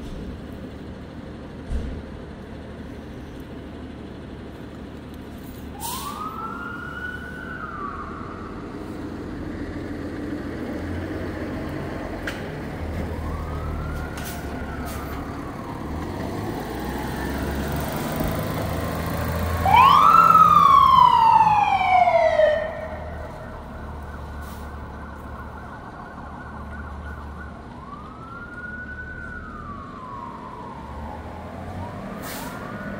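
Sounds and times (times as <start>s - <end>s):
truck engine rumble: 0.0s - 32.9s
fire truck siren wailing: 5.6s - 32.9s.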